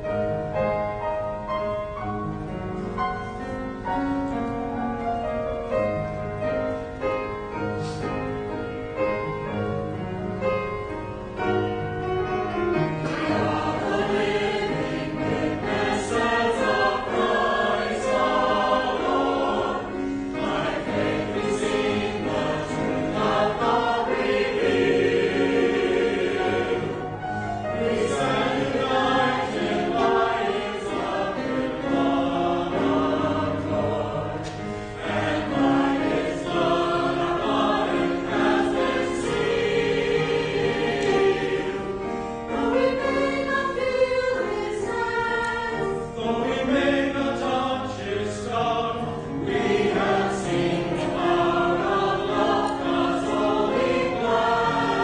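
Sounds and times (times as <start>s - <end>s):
piano accompaniment: 0.0s - 55.0s
choir singing: 11.4s - 55.0s.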